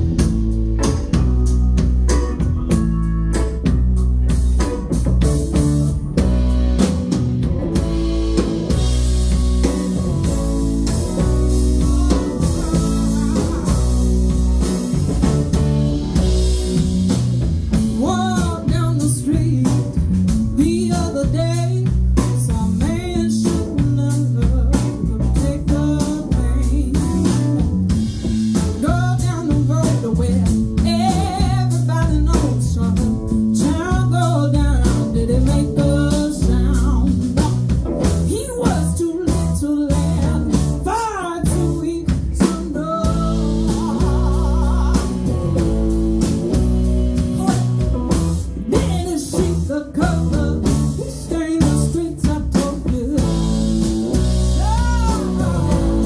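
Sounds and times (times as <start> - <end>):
bass guitar: 0.0 - 56.0
drum kit: 0.0 - 56.0
electric guitars: 0.0 - 56.0
woman singing: 11.0 - 14.0, 17.8 - 27.7, 28.5 - 45.9, 47.2 - 56.0.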